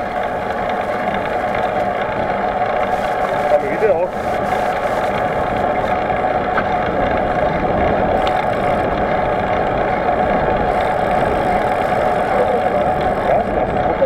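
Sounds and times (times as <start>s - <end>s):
bike riding on road: 0.0s - 14.0s.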